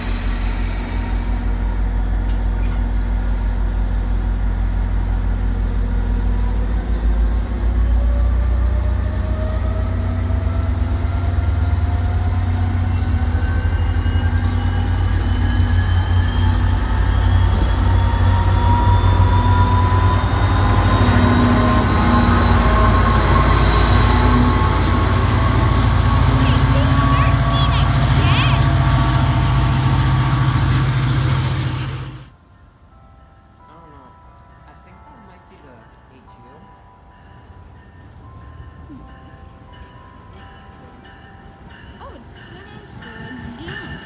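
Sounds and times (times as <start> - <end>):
train rolling past rumbling: 0.0 - 32.6, 37.0 - 44.0
rising whine: 13.3 - 26.1.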